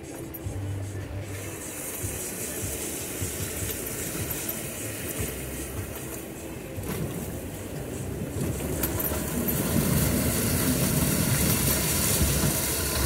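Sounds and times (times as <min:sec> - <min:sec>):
engine running low: 0:00.0 - 0:13.0
water rushing and splashing: 0:08.3 - 0:13.0.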